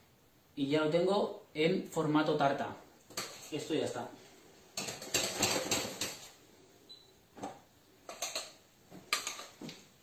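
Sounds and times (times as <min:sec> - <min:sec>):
metal spoon scraping saucepan: 0:03.1 - 0:03.7.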